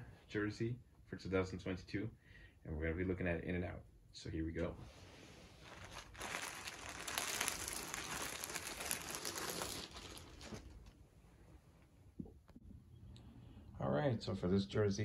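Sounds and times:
plastic bag crinkling: 5.6s - 11.0s.

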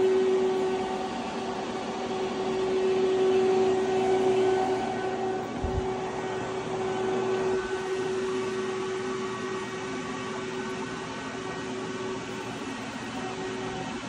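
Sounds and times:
electrical hum with whining tone: 0.0s - 14.0s.

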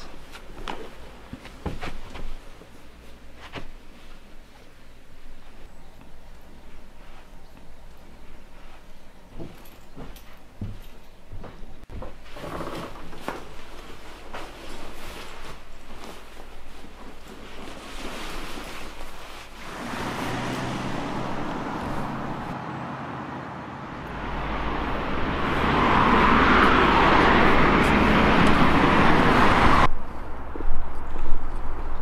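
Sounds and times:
rushing noise: 19.6s - 30.6s.

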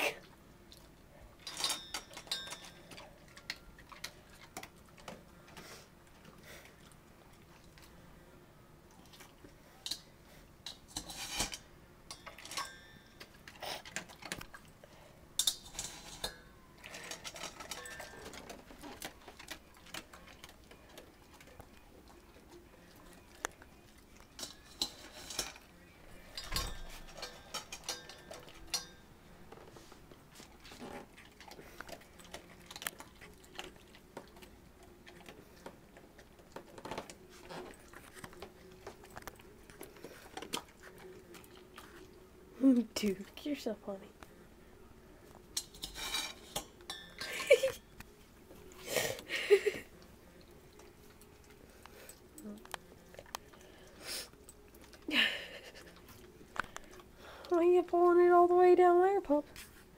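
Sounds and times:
kibble clinking on metal bowl: 1.4s - 4.1s, 10.7s - 13.4s, 26.4s - 29.1s
dog crunching dry kibble: 16.9s - 25.3s, 30.1s - 42.1s.

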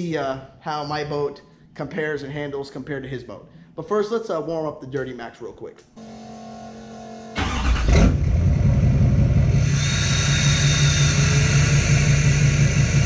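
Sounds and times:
diesel engine starting and idling: 6.8s - 13.0s
high hiss: 9.6s - 13.0s.

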